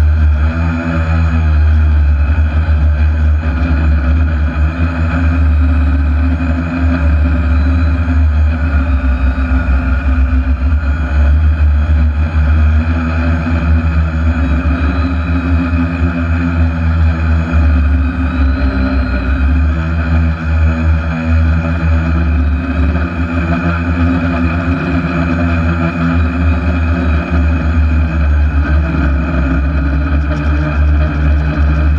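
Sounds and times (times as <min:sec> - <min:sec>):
drone motors and propellers: 0:00.0 - 0:31.9.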